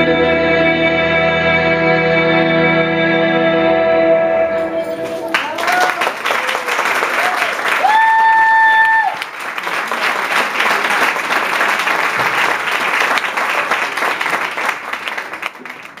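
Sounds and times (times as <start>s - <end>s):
audience applauding: 5.0s - 16.0s.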